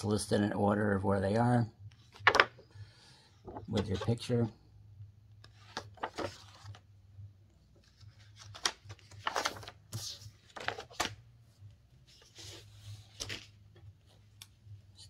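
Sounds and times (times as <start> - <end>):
paper and plastic packaging rustling: 5.6 - 6.8, 7.8 - 11.2.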